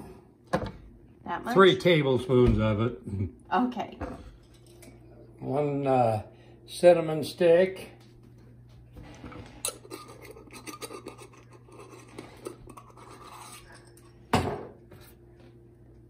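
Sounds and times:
faint steady hum: 0:00.0 - 0:16.0
spice containers clicking and scraping: 0:09.6 - 0:13.9.

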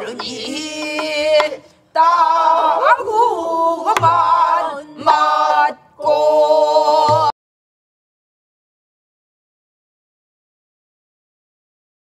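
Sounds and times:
group singing in unison: 0:00.0 - 0:07.4
barrel drum stroke: 0:03.9 - 0:04.4.

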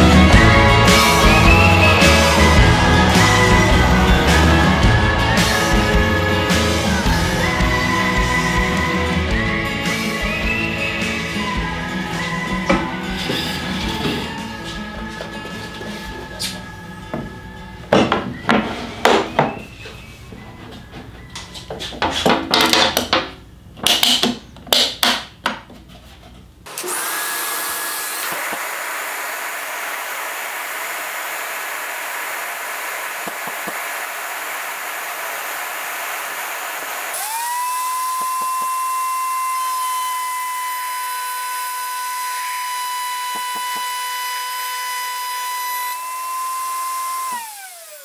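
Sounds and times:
background music: 0:00.0 - 0:21.6
motor whine: 0:26.7 - 0:48.0
power tool rushing noise: 0:26.7 - 0:48.0.

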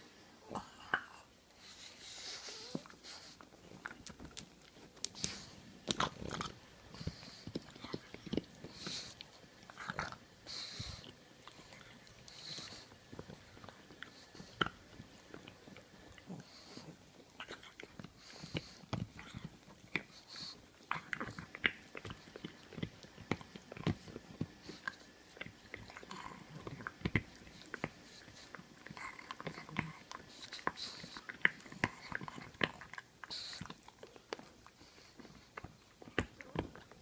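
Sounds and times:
dog hissing nose breaths: 0:01.5 - 0:03.7, 0:05.0 - 0:05.8, 0:06.9 - 0:09.5, 0:10.2 - 0:14.9, 0:18.0 - 0:32.5, 0:33.1 - 0:33.8
dog chewing and gnawing: 0:01.6 - 0:37.0.

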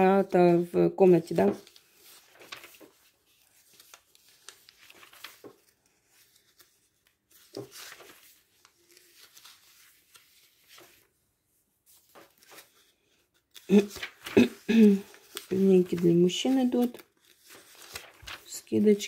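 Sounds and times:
catalogue pages rustling: 0:00.0 - 0:19.0
sharp page flip: 0:01.5 - 0:11.1, 0:11.9 - 0:18.8.

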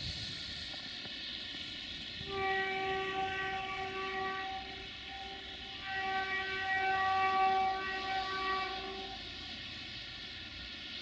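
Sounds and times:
locomotive air horn blasts: 0:02.2 - 0:09.6.

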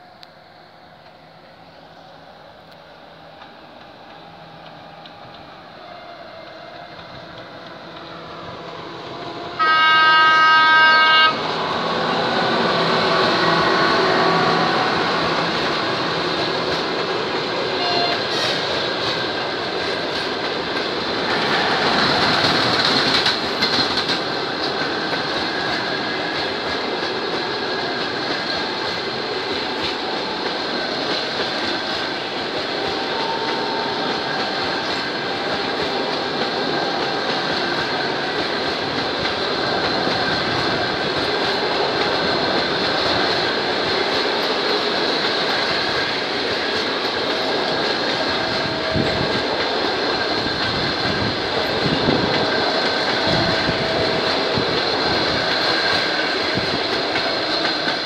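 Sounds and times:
train wheels rumbling on rails: 0:00.0 - 0:58.0
locomotive horn blast: 0:09.6 - 0:11.5, 0:13.0 - 0:15.3, 0:17.8 - 0:18.4.

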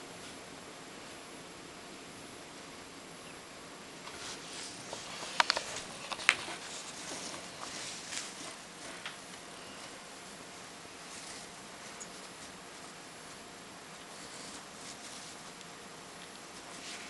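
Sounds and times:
hamster scratching in bedding: 0:04.0 - 0:09.1, 0:09.7 - 0:15.6, 0:16.4 - 0:17.0.

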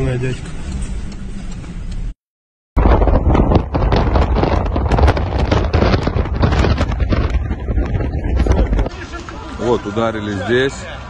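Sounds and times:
low road rumble: 0:00.0 - 0:02.2, 0:02.8 - 0:11.0
wind buffeting microphone: 0:02.8 - 0:10.1.

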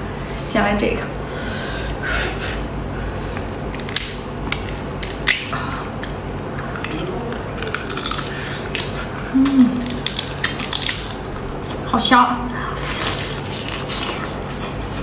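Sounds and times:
crunching and chewing fried prawn: 0:03.5 - 0:11.9, 0:12.8 - 0:15.0
person humming: 0:09.3 - 0:10.0.

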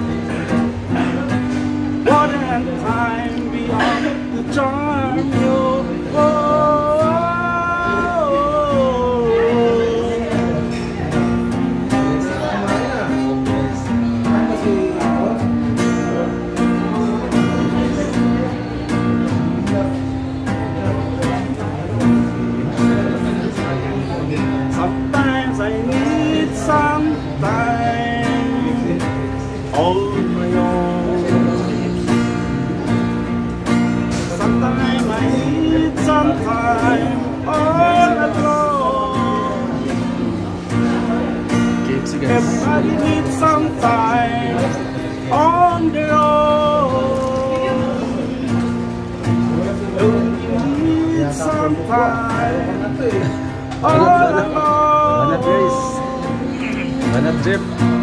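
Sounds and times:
guitar: 0:00.0 - 0:58.0
person singing: 0:50.0 - 0:57.4.

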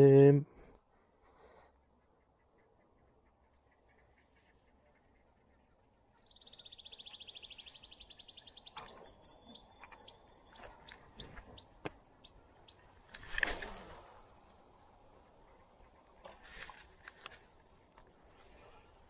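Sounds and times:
small ticks: 0:06.5 - 0:14.6
fishing rod cast swish: 0:13.2 - 0:14.2.

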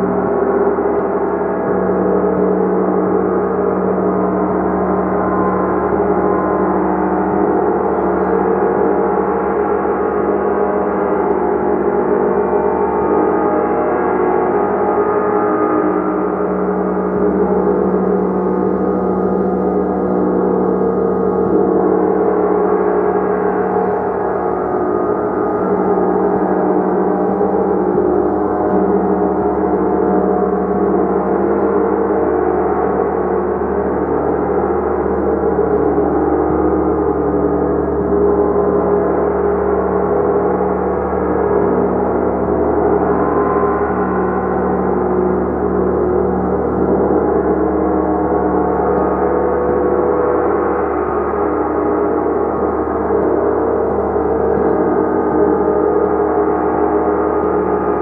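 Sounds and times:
gong ringing: 0:00.0 - 0:09.2, 0:36.2 - 0:51.4.

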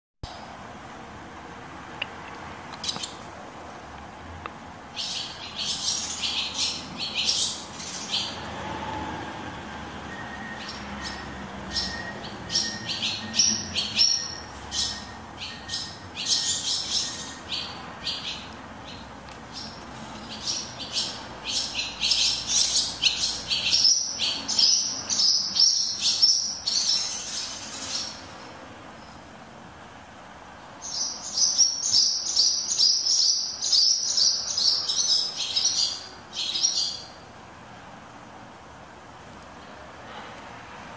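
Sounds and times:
swallows twittering: 0:05.0 - 0:08.5, 0:10.1 - 0:28.4.

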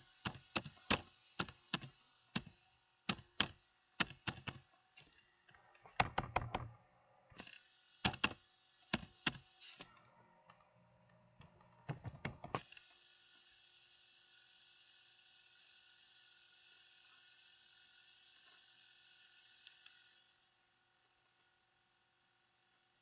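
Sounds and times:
typing on computer keyboard: 0:03.1 - 0:04.6, 0:05.9 - 0:06.7, 0:08.0 - 0:09.4, 0:11.4 - 0:12.6.

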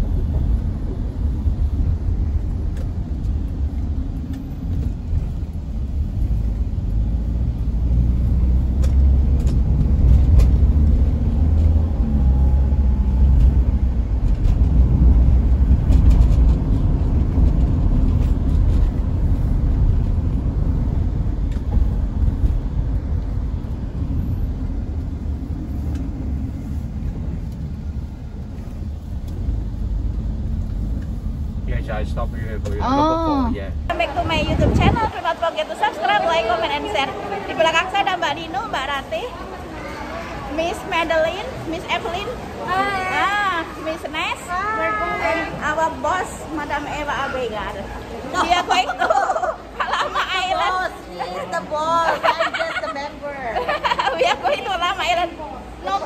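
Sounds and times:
vehicle engine and road noise: 0:00.0 - 0:56.0.

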